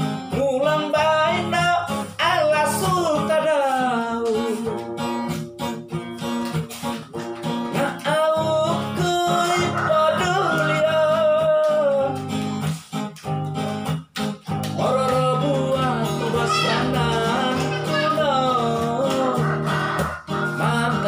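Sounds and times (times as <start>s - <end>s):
man singing: 0.0s - 4.9s, 7.7s - 12.3s, 14.7s - 21.0s
acoustic guitar strumming: 0.0s - 21.0s.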